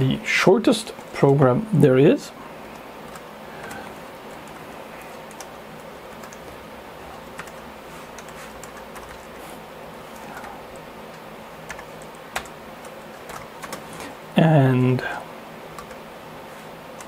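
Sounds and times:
faint steady hum: 0.0s - 17.0s
keyboard keys clicking: 7.2s - 7.6s, 8.2s - 9.3s, 11.1s - 13.8s, 15.8s - 16.0s.

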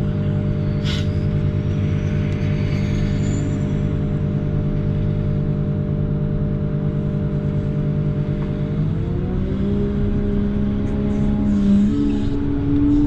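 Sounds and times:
diesel engine revving: 3.6s - 13.0s.

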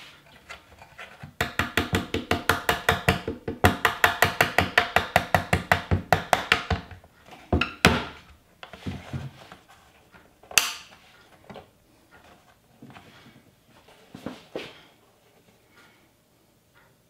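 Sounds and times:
mallet tapping wood chisel: 1.4s - 7.0s
faint handling noises: 8.6s - 17.0s.

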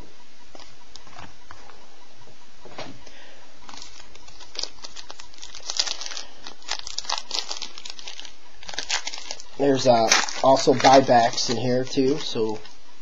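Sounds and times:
trading cards rustling: 3.7s - 12.7s.

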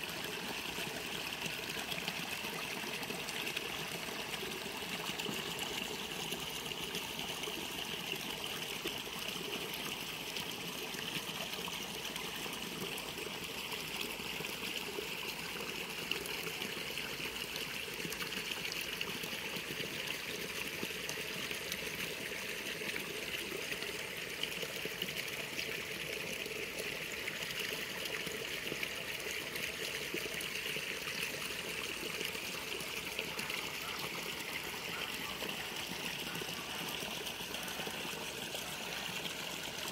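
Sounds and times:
water trickling in a ditch: 0.0s - 39.9s.

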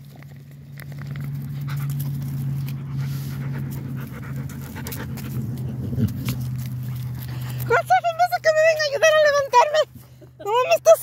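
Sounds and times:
steady low hum: 0.0s - 10.5s
dog panting and sniffing: 0.6s - 9.2s.

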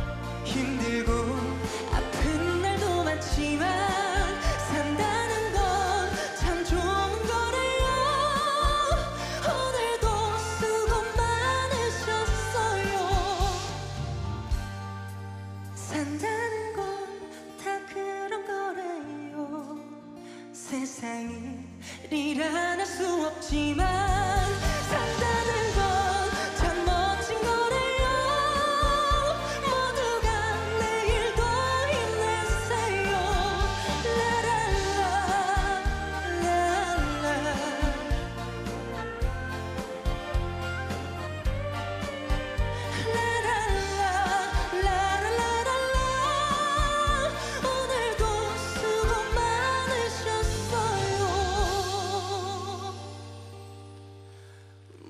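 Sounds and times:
man singing ballad with vibrato: 0.0s - 13.9s, 20.6s - 40.0s
band accompaniment with bass: 0.0s - 17.2s, 23.0s - 55.0s
man singing with vibrato: 23.5s - 38.4s.

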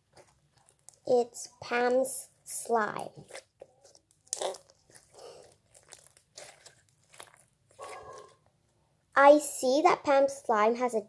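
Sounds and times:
slime squishing and popping: 2.9s - 8.3s.

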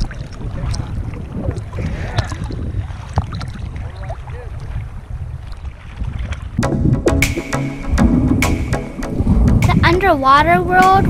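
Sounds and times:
sea water sloshing and splashing: 0.0s - 6.9s
wind buffeting microphone: 0.0s - 11.0s.

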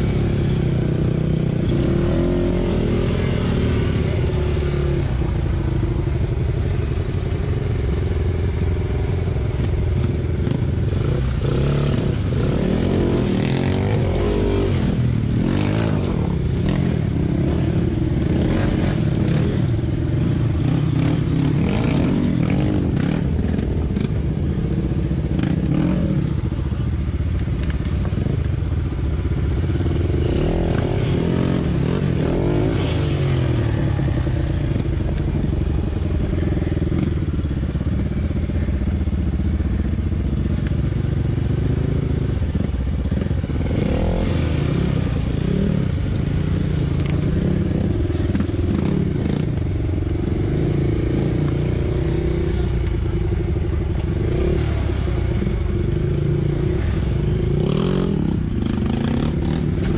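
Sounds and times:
dirt bike engine revving: 0.0s - 5.0s, 10.0s - 24.2s, 24.8s - 26.5s, 29.8s - 37.3s, 41.7s - 52.7s, 53.9s - 59.9s.

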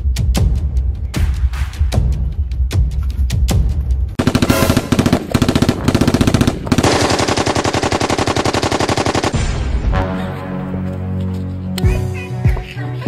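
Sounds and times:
automatic gunfire bursts: 4.2s - 9.4s.

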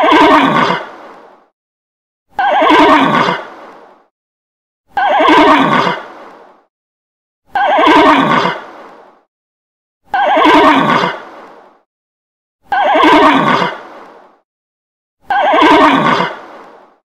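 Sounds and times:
horse whinnying: 0.0s - 0.8s, 2.4s - 3.4s, 5.0s - 6.0s, 7.5s - 8.6s, 10.1s - 11.2s, 12.7s - 13.8s, 15.3s - 16.4s.

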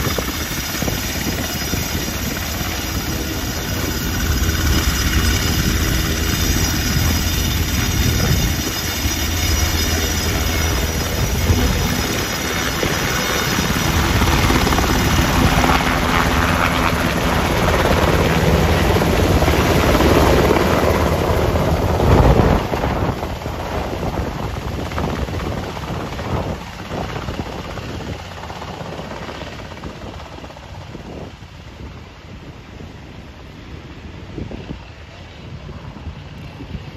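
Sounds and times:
helicopter rotor beat: 0.0s - 36.9s
helicopter turbine whine: 0.0s - 36.9s.

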